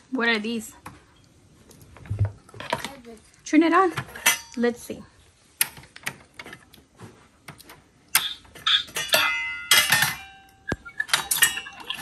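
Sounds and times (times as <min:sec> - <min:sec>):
metal pot and lid clattering: 0:04.2 - 0:04.6, 0:08.2 - 0:12.0.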